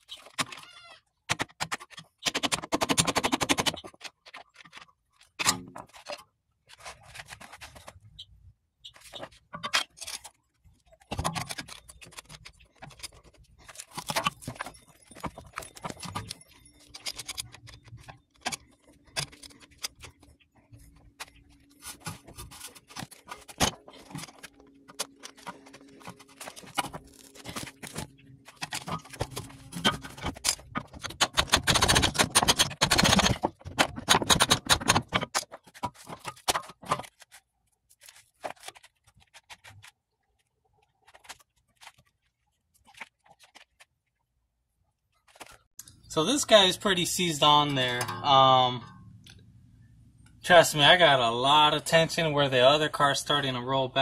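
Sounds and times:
metal clicking and rattling: 11.0 - 20.4, 22.2 - 37.3.

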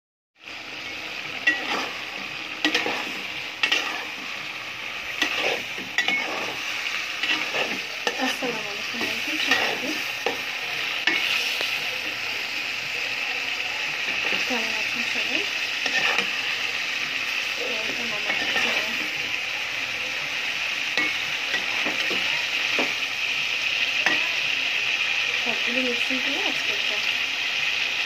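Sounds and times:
curry sizzling in a pan: 0.4 - 28.0
spoon knocking and scraping pan: 1.4 - 4.3, 5.0 - 11.4, 15.8 - 16.5, 17.8 - 19.0, 21.0 - 23.0.

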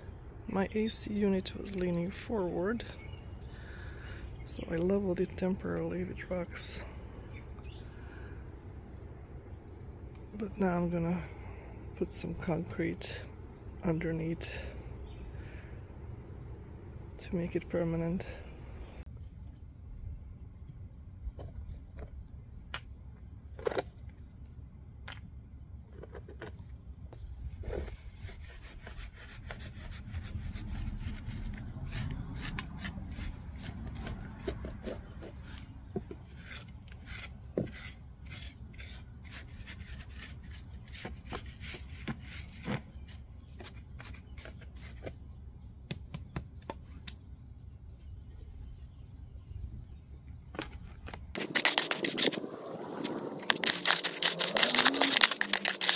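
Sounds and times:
stones clicking and knocking: 50.5 - 55.9
gritty scraping of gravel: 50.7 - 55.9.

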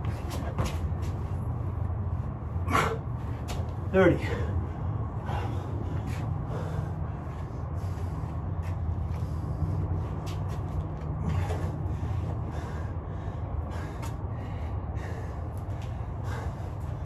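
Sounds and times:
steady low hum: 0.0 - 17.0
person breathing hard: 4.2 - 17.0.

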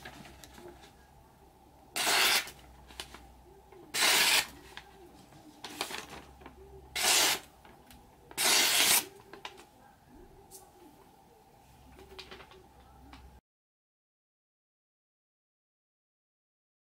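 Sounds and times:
paper rustling: 0.0 - 1.0, 2.0 - 3.3, 3.9 - 9.7, 11.8 - 13.3
knife slicing through newspaper: 2.0 - 2.6, 3.9 - 4.6, 7.0 - 7.5, 8.4 - 9.1.

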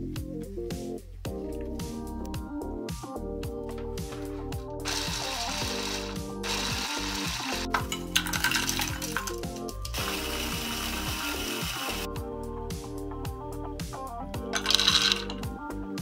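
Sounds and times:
background music: 0.0 - 16.0
electric chopper grinding: 4.9 - 9.2, 10.0 - 12.0
wafer rolls clattering into plastic bowl: 7.7 - 10.0, 14.6 - 15.4.

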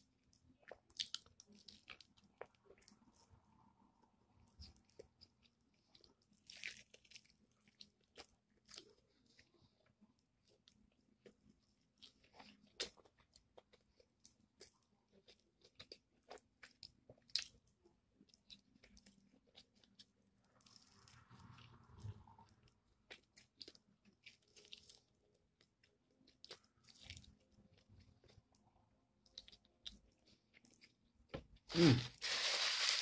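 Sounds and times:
crunching fried chicken: 4.5 - 9.6.

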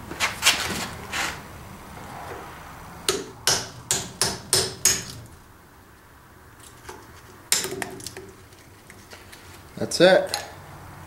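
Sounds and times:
hammer striking metal: 3.1 - 5.2.

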